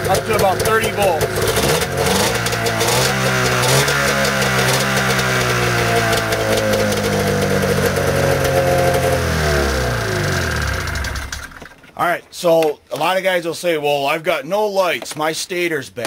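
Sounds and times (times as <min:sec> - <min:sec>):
snowmobile engine revving: 0:00.0 - 0:11.6.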